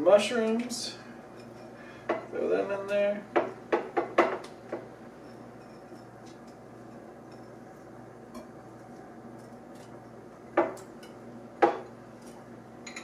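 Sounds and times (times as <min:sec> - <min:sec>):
faint steady hum: 0:00.0 - 0:13.0
utensils clinking in bowls: 0:12.2 - 0:13.0.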